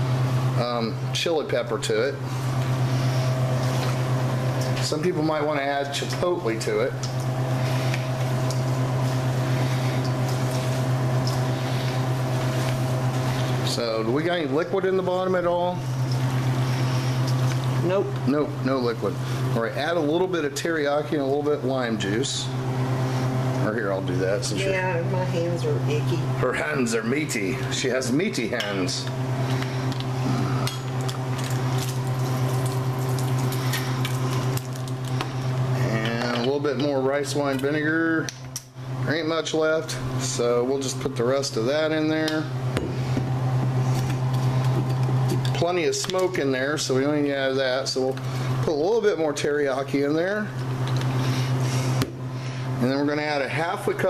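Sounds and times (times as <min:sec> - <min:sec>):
low electrical hum: 0:00.0 - 0:54.0
wet squishing of meat being mixed: 0:30.9 - 0:35.9.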